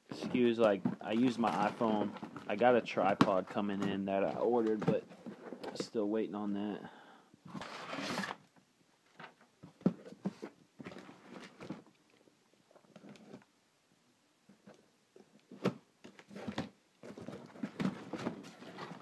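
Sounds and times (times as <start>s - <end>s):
hands handling cardboard box: 15.5s - 19.0s.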